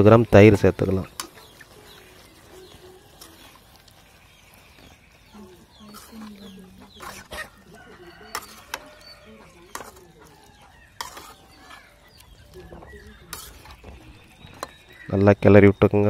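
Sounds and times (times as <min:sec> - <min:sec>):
metal spoon clinking in pan: 0:11.0 - 0:11.8.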